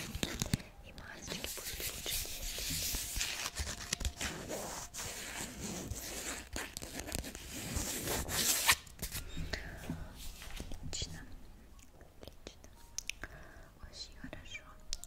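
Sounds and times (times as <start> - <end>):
crinkling handling noise: 0.0 - 5.0.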